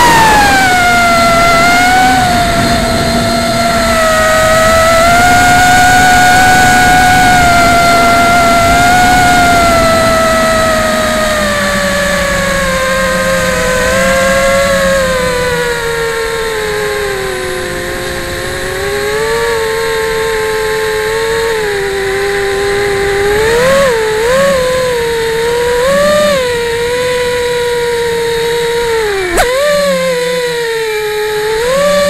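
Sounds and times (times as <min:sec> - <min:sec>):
quadcopter motors whining: 0:00.0 - 0:32.0
sharp click: 0:29.3 - 0:29.8.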